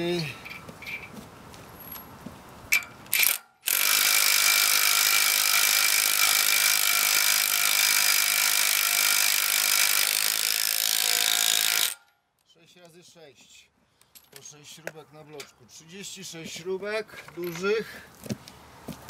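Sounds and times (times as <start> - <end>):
power tool driving bolt: 2.7 - 12.1.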